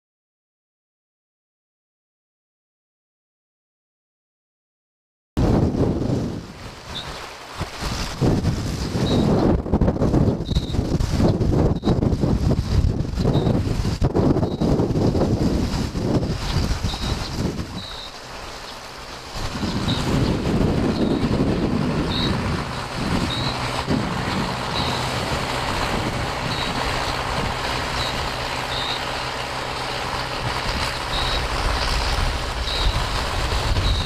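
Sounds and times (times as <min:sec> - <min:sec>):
pump engine droning: 0:05.4 - 0:34.0
short high chirps: 0:16.9 - 0:18.2.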